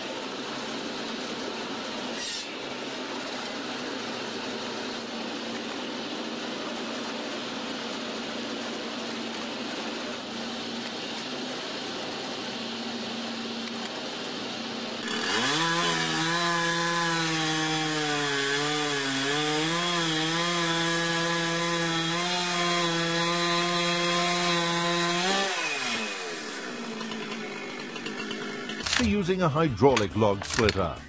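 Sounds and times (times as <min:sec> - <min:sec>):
saw engine cutting log: 0:00.0 - 0:30.9
steady machine noise: 0:25.7 - 0:30.6.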